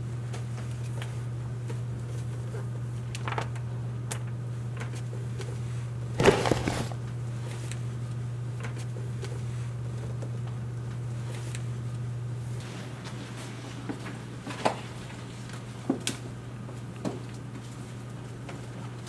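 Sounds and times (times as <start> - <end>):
books tapping and rustling: 6.2 - 7.0
knock and scrape on shelf: 6.2 - 7.0.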